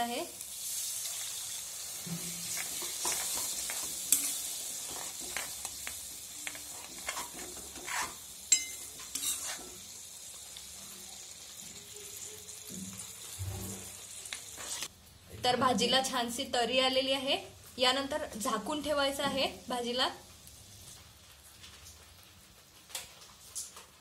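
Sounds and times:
paste sizzling in oil: 0.0 - 14.9
spatula scraping pan: 2.0 - 9.9, 13.3 - 14.9.

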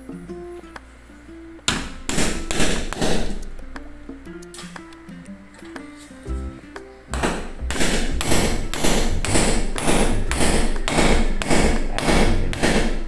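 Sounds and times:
hammer blows on tool: 7.1 - 13.0.

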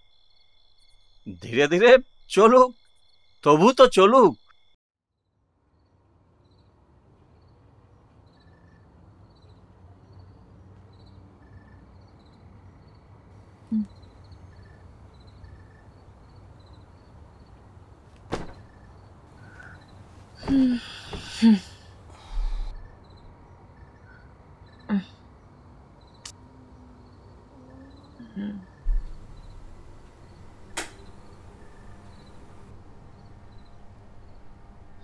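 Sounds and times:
crickets chirping: 0.0 - 4.8, 7.4 - 35.0
dull low thump: 28.8 - 32.6
sharp click: 30.7 - 31.1.

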